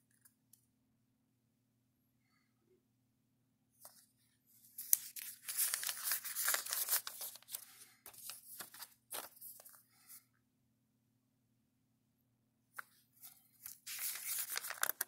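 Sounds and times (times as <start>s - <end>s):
booklet pages turning: 4.8s - 10.2s, 12.8s - 15.0s.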